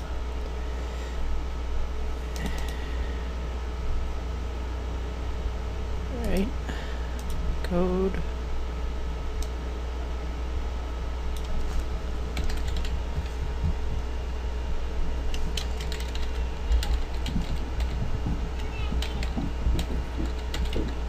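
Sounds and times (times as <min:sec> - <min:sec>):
steady low hum: 0:00.0 - 0:21.0
keyboard typing: 0:11.3 - 0:13.0, 0:15.3 - 0:21.0.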